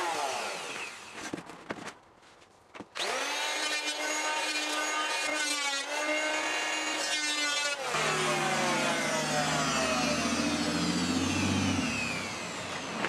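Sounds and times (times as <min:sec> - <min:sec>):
orbital sander on wood: 0:00.0 - 0:01.1, 0:03.0 - 0:13.0.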